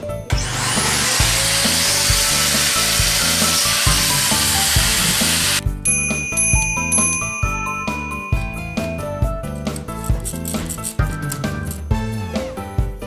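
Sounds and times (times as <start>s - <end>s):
electric motor whine: 0.3s - 5.6s
background music with a beat: 1.3s - 13.0s.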